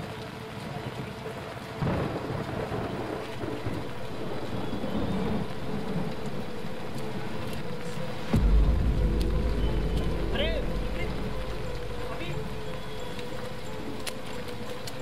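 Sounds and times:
steady rain falling: 0.0s - 15.0s
low rumbling thunder: 1.8s - 7.3s, 8.1s - 14.0s.

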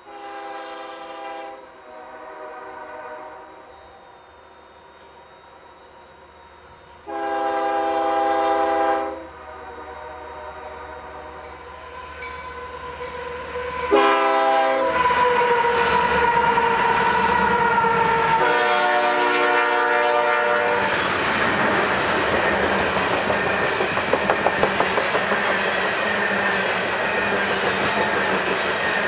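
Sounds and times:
locomotive horn blasts: 0.0s - 3.7s, 7.0s - 11.5s, 13.8s - 15.3s, 18.4s - 20.9s
train wheels clacking on rail joints: 20.8s - 29.0s.

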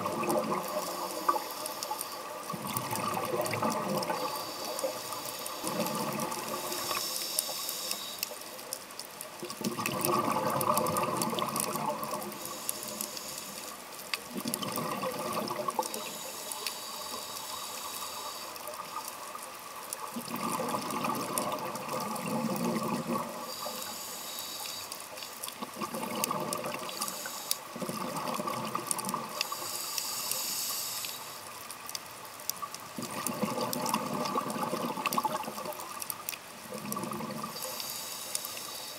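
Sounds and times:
exhaled bubbles rushing: 0.0s - 1.0s, 2.5s - 4.3s, 9.4s - 12.3s, 14.3s - 15.9s, 20.1s - 23.4s, 25.6s - 26.9s, 27.8s - 29.3s, 33.0s - 35.8s, 36.6s - 37.6s
diver inhaling through regulator: 4.2s - 8.3s, 12.3s - 13.7s, 15.9s - 18.6s, 26.8s - 27.6s, 29.4s - 31.4s.

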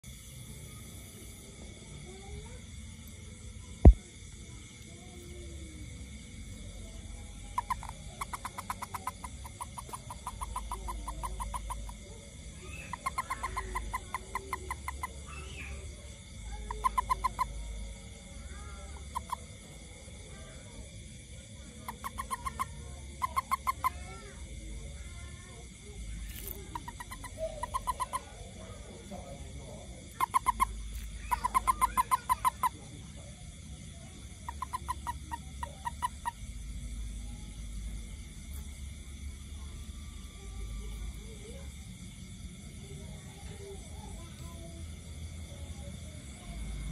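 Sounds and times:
toad chirping pulses: 5.1s - 42.0s.

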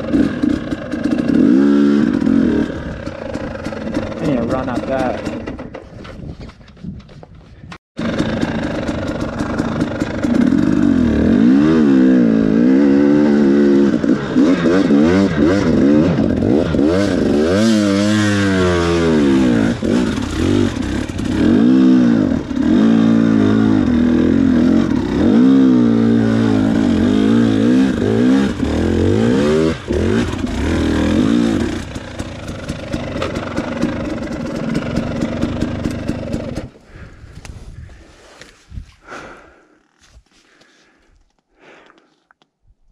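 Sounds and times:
dirt bike engine revving: 0.0s - 5.6s, 8.0s - 37.1s.

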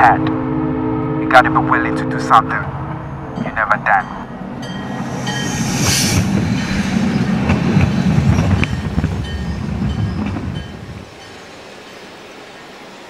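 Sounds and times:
train rumbling past: 0.0s - 13.0s
train wheels clicking: 4.9s - 10.8s
brief hiss: 5.1s - 7.2s.

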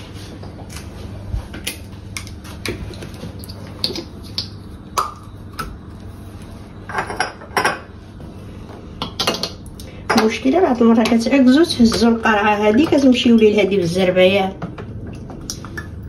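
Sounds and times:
kitchen items clattering: 6.9s - 7.9s.

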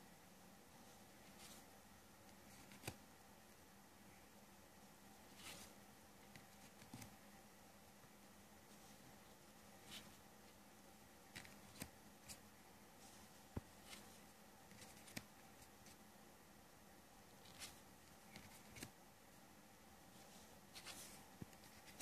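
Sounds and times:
cards sliding and clicking: 2.3s - 3.0s, 5.3s - 7.2s, 11.3s - 12.4s, 13.1s - 16.0s, 17.4s - 19.0s, 20.2s - 22.0s.

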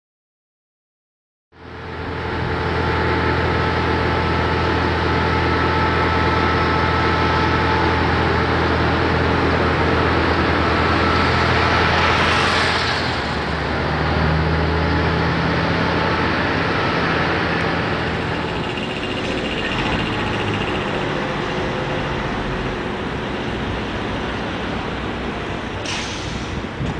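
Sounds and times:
engine rumble: 1.6s - 26.9s
low hum: 17.0s - 23.2s.

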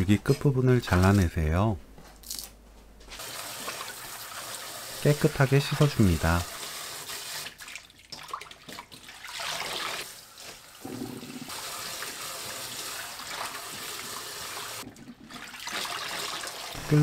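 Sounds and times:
tap water running into bowl: 11.2s - 16.8s.

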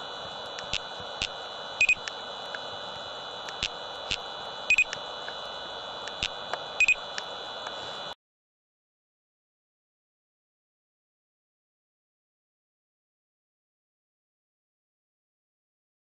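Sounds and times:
steady hiss: 0.0s - 8.2s
laser speed gun double beeps: 6.8s - 7.0s.

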